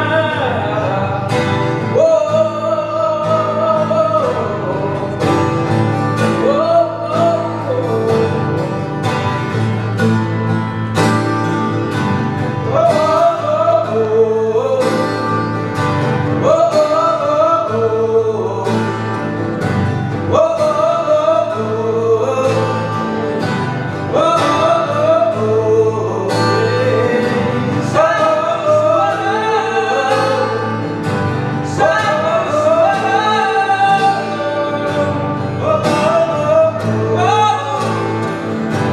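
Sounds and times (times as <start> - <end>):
man singing: 0.0 - 9.3, 12.5 - 38.9
acoustic guitars strummed: 0.0 - 38.9.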